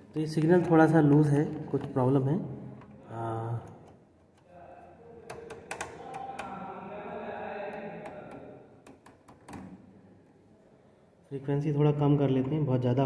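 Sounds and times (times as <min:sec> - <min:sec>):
faint voice: 0:04.5 - 0:08.5
rotary switch clicking: 0:05.2 - 0:06.6, 0:08.0 - 0:09.8.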